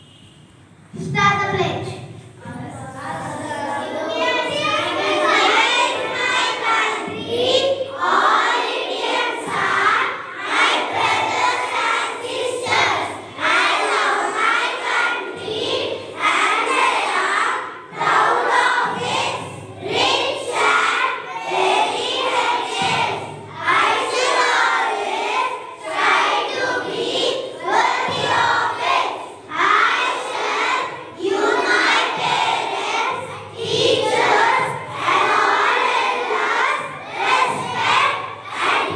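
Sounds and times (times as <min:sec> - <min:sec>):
children chanting in unison: 0:02.0 - 0:38.9.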